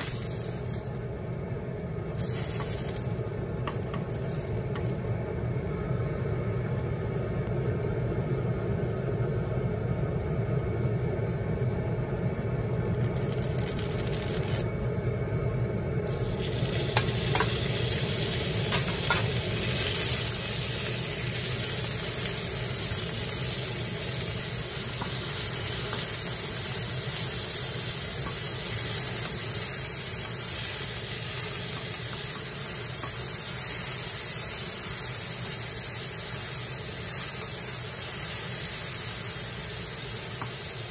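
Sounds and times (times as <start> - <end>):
meat sizzling in hot oil: 0.0 - 1.4, 2.2 - 5.1, 12.7 - 14.6, 16.1 - 40.9
utensils clicking against pan: 18.7 - 19.4.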